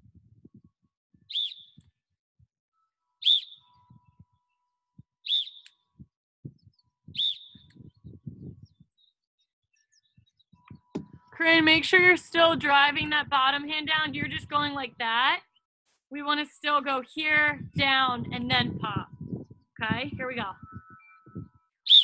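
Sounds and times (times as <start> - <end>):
sports whistle blasts: 3.2 - 3.6.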